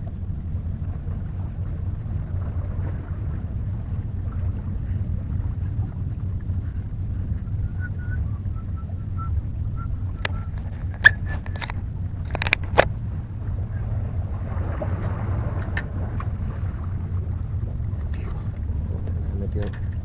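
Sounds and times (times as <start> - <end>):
wind buffeting microphone: 0.0 - 20.0
handling clicks and crackles: 10.2 - 12.9.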